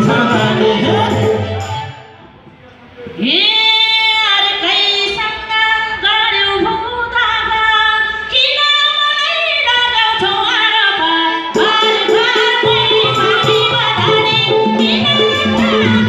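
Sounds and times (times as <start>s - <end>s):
live band playing: 0.0s - 2.5s, 11.6s - 16.0s
percussion: 0.0s - 5.4s, 10.1s - 16.0s
women singing folk song: 3.3s - 16.0s.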